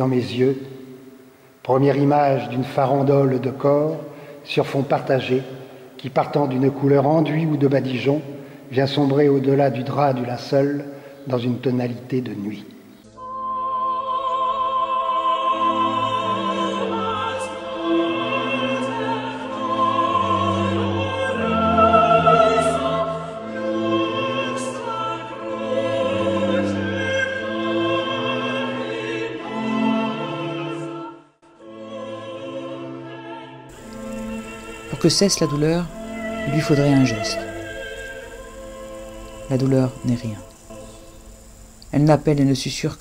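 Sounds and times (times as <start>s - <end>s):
high singing voice with vibrato: 13.1s - 42.1s.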